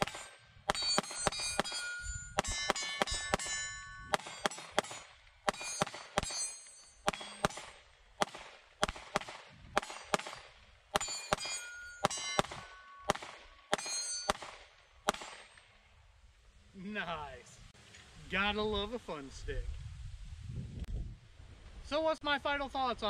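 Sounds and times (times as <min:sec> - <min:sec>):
metallic ring: 0:00.0 - 0:07.8, 0:09.8 - 0:15.6
pistol shots: 0:00.0 - 0:15.6.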